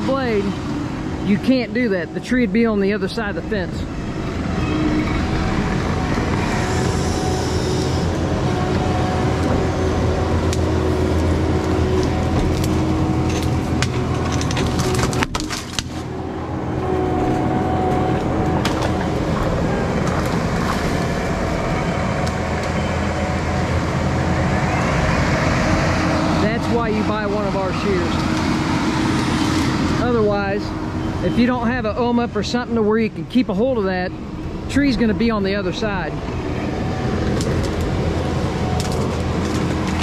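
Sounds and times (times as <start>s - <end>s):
diesel engine running under load: 0.0s - 40.0s
tree branches cracking: 10.4s - 16.4s, 17.0s - 22.8s, 36.3s - 40.0s.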